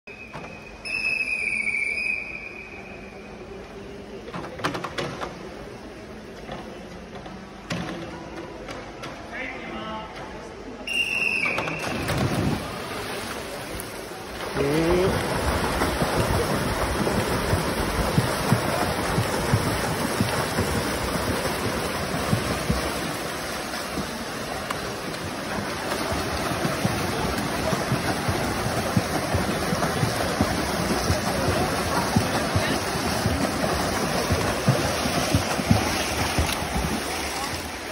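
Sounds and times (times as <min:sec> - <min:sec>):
swimmers splashing: 0:11.4 - 0:37.9.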